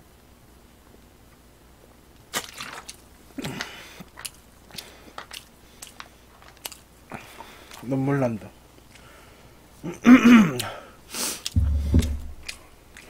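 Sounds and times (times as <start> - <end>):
man gulping: 11.5 - 12.6.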